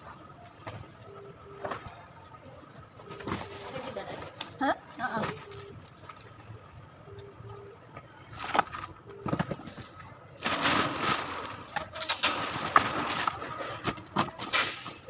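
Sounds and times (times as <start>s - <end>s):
plastic bags rustling: 8.3s - 14.9s.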